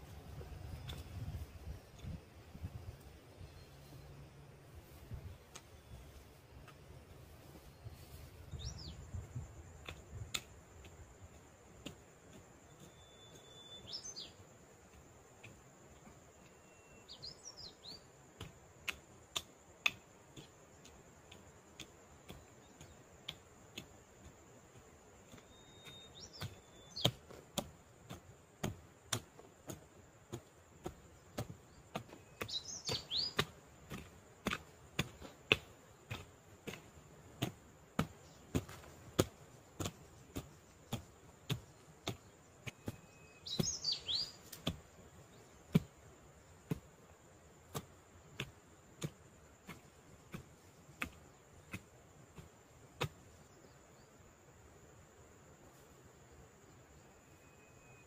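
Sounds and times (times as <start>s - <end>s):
birds chirping: 0.0s - 47.8s
hoe chopping into soil: 18.4s - 53.8s.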